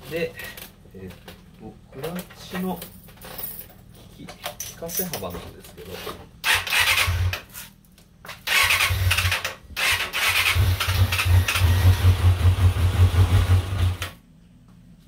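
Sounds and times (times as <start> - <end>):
electric starter cranking engine: 6.4 - 7.4, 8.4 - 14.1.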